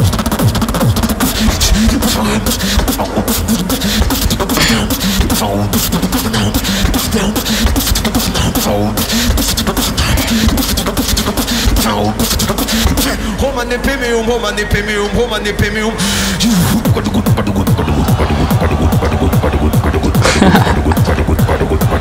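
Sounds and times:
beatboxing: 0.0 - 22.0
warbling vocal sounds: 1.3 - 7.4.

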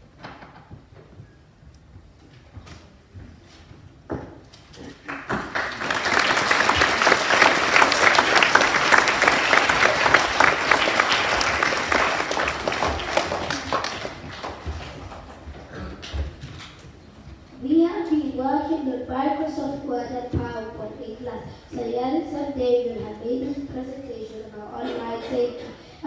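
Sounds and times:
children applauding: 5.0 - 15.5.

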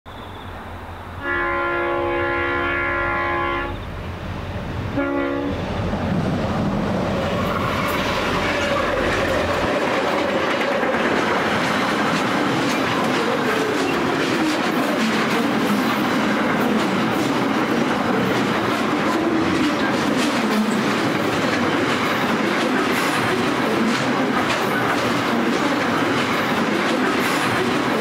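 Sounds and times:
diesel locomotives passing: 0.1 - 28.0
locomotive horn blasts: 1.2 - 3.9, 4.9 - 5.6
train wheels clicking over rail joints: 6.1 - 28.0.

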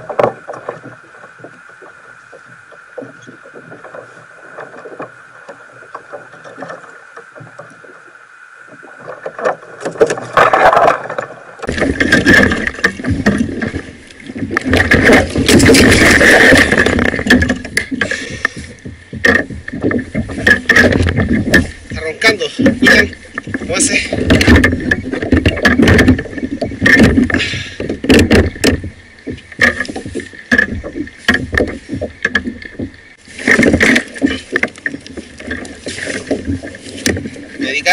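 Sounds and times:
fish splashing against kayak: 0.0 - 37.9
lapping water: 14.5 - 19.6.

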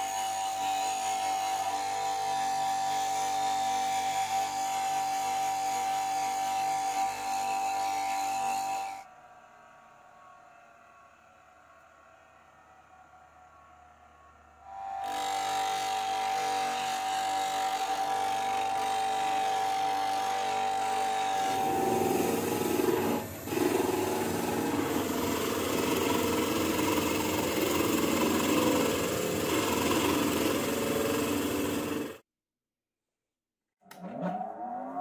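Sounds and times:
bench grinder whining: 14.7 - 32.2
lathe chisel cutting wood: 14.7 - 32.2.

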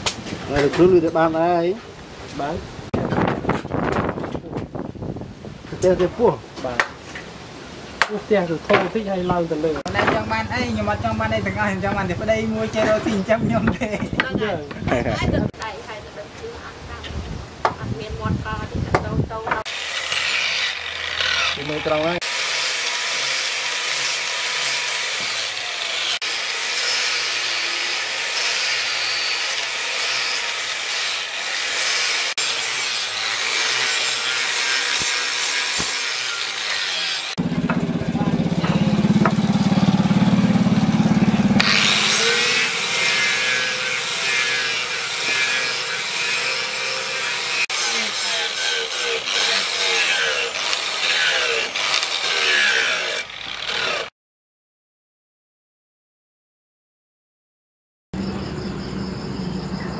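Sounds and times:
angle grinder grinding: 19.6 - 54.1.

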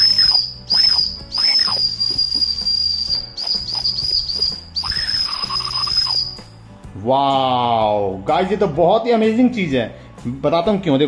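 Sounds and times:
high-pitched toy whistle blasts: 0.0 - 6.5.

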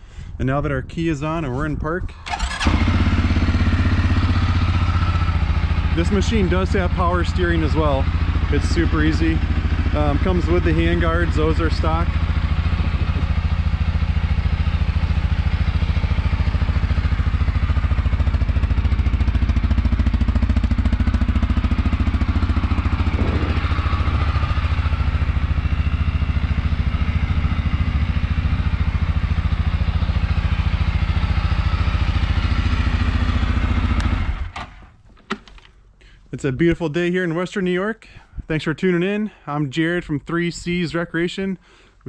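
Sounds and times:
atv engine idling: 2.2 - 34.9.

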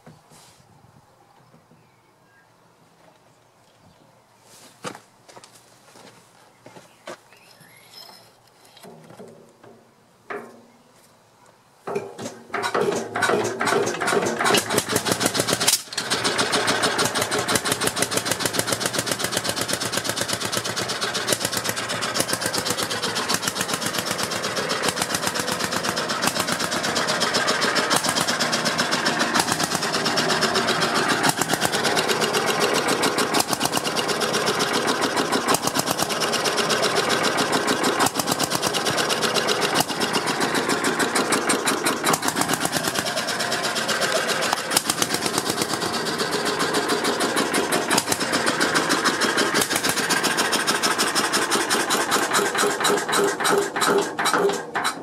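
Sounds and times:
two-stroke engine running: 12.6 - 55.0.

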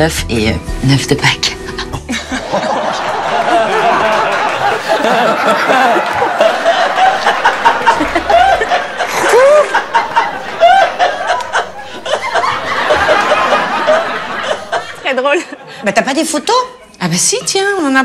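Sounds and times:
people laughing: 2.0 - 16.1.

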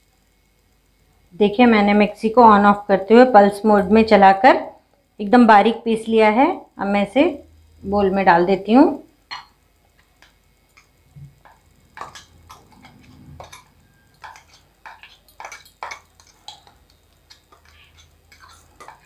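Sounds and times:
spoon scraping steel jar: 12.0 - 19.0.

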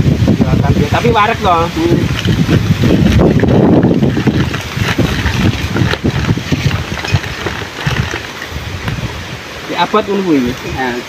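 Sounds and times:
wind buffeting the microphone: 0.0 - 11.0
sack rustling: 1.5 - 9.4.

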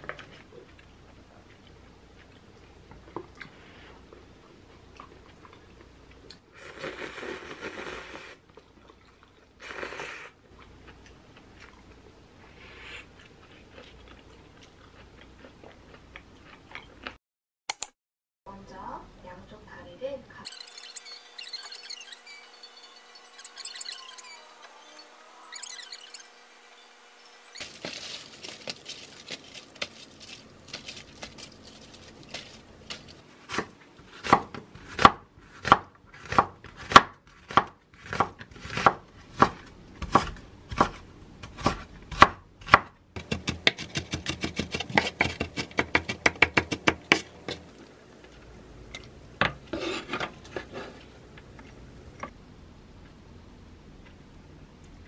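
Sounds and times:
knife slicing onion on wooden board: 32.3 - 47.7.

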